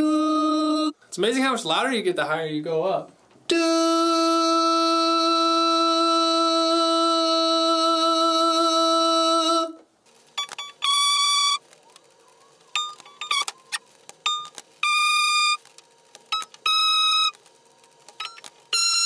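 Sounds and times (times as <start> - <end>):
man singing a held note: 0.0 - 1.0, 3.5 - 9.8
clicks: 11.6 - 14.7.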